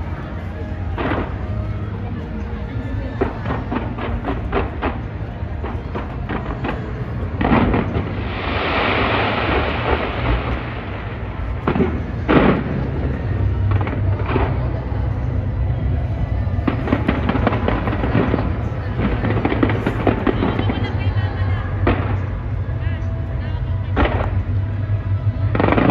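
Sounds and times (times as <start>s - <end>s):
steady low rumble: 0.0s - 25.9s
fireworks bangs: 3.2s - 22.8s, 23.9s - 25.9s
fireworks crackling hiss: 3.6s - 15.3s.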